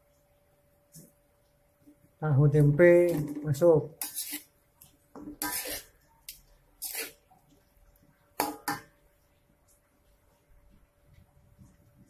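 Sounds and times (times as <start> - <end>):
metal ladle scraping a wok: 4.0 - 4.6, 5.2 - 7.2.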